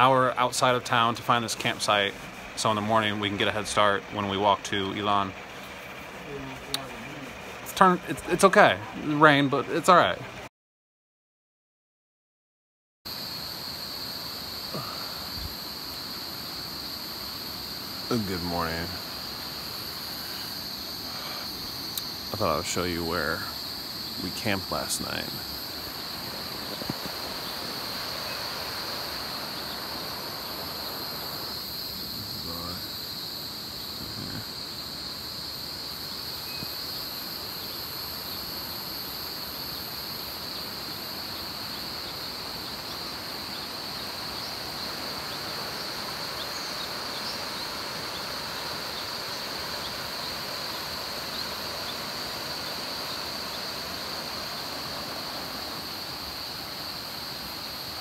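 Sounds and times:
high-pitched insect drone: 13.1s - 58.0s.

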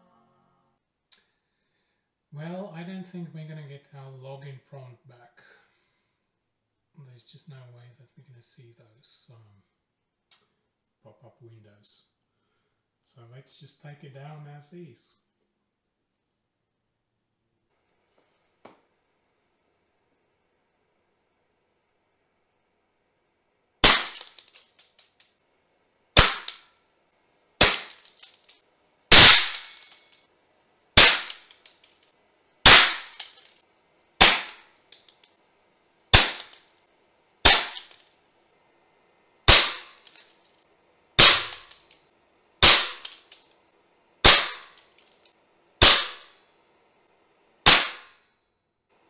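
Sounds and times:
air rifle shots cracking: 23.8s - 24.6s, 26.2s - 26.6s, 27.6s - 28.3s, 29.1s - 30.0s, 31.0s - 31.7s, 32.6s - 33.4s, 34.2s - 34.8s, 36.1s - 36.6s, 37.4s - 38.0s, 39.5s - 40.2s, 41.2s - 41.8s, 42.6s - 43.3s, 44.2s - 44.8s, 45.8s - 46.3s, 47.7s - 48.1s.

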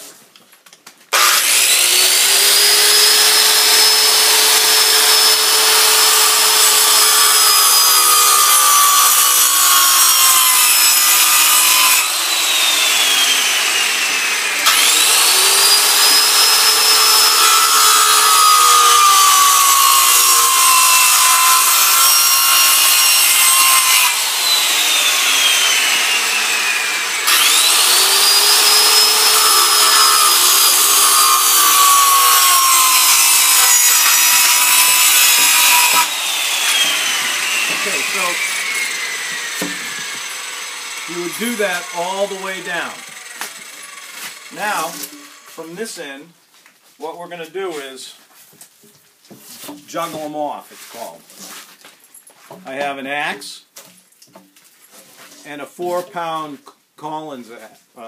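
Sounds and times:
circular saw cutting wood: 1.1s - 46.2s.

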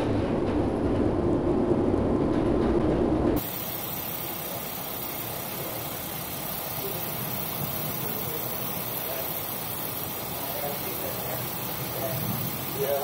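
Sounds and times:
storm wind hiss: 10.4s - 13.0s.

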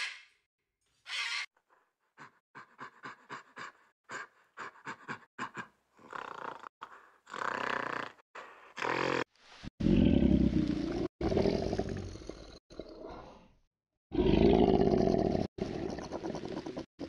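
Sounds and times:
macaw squawking: 1.1s - 1.5s
gorilla panting grunts: 1.7s - 8.9s.

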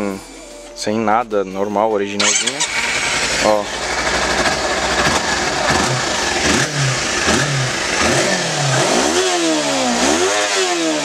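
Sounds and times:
motorcycle engine revving: 2.2s - 11.0s.

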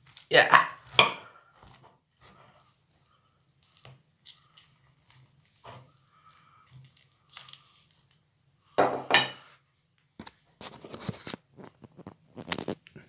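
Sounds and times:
ceramic plate knocking on wooden table: 8.8s - 9.4s.

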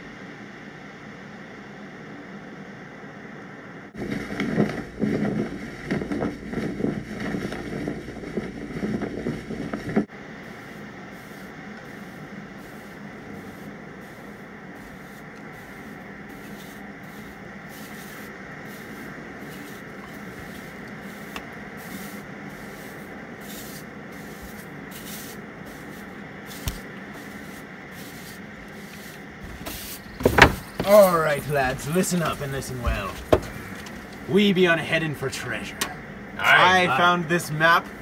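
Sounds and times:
steady rushing hiss: 3.9s - 38.0s
soft scraping strokes: 4.1s - 34.2s.

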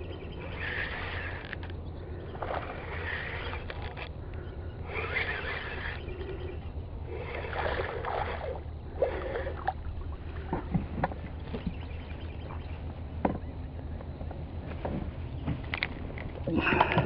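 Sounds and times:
steady low hum: 0.0s - 17.0s
spinning reel cranking: 0.4s - 4.1s, 4.9s - 9.6s.

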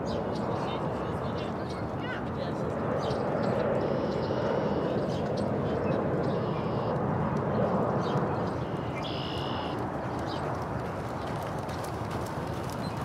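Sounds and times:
horse hoofbeats galloping on dirt: 9.3s - 13.0s.

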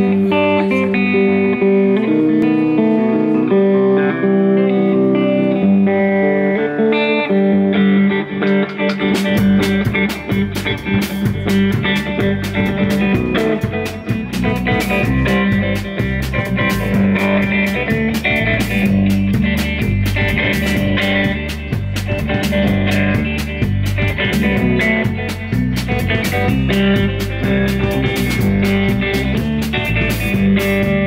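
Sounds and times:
bass guitar line: 0.0s - 31.0s
guitar picking a riff: 0.0s - 31.0s
drum kit beat: 8.4s - 31.0s.

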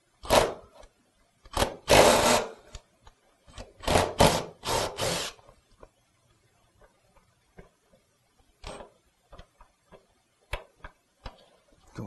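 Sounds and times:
cordless drill running: 1.6s - 2.5s, 3.8s - 5.4s.

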